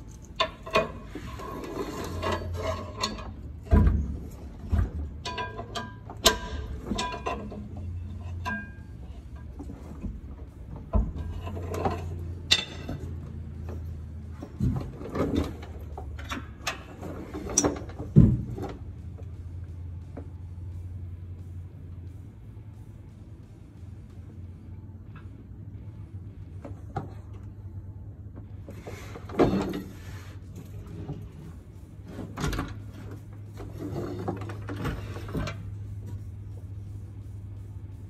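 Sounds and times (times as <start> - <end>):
metal clanks and knocks: 0.0 - 20.9, 28.4 - 36.3
low hum: 0.0 - 38.0.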